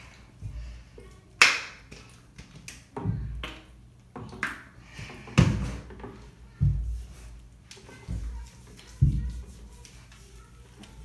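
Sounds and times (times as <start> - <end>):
taps and splashes in bathtub: 1.4 - 7.0.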